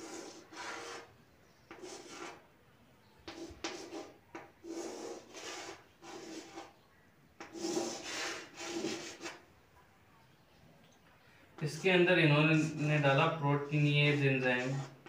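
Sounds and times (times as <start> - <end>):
chalk scraping on blackboard: 0.0 - 1.1, 1.7 - 2.4, 3.2 - 6.8, 7.4 - 9.4, 11.7 - 15.0.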